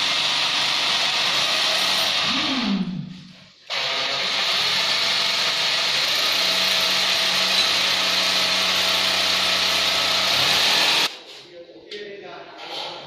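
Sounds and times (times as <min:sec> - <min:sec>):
electric drill boring into tile: 0:00.0 - 0:02.4, 0:03.7 - 0:11.1.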